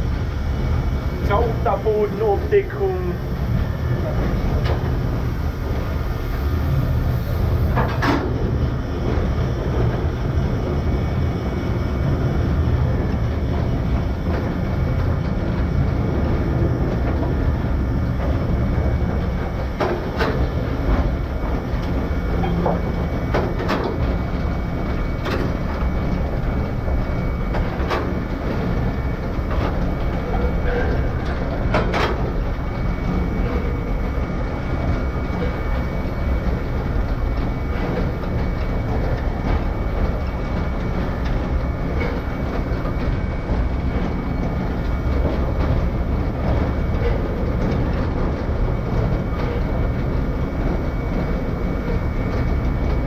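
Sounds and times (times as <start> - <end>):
train wheels rumbling on rail: 0.0 - 53.0.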